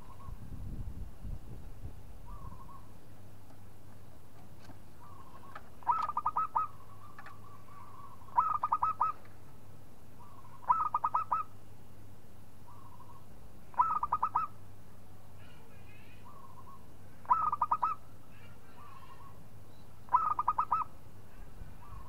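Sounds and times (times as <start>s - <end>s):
dove cooing song: 0.0s - 0.5s, 2.2s - 2.9s, 5.0s - 9.3s, 10.2s - 11.6s, 12.7s - 14.6s, 16.2s - 18.0s, 20.1s - 22.0s.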